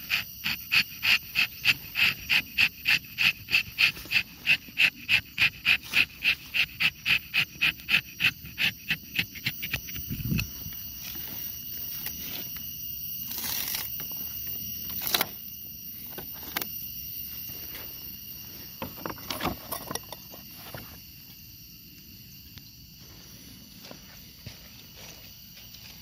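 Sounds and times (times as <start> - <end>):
rustling in dry leaves: 10.4 - 15.3.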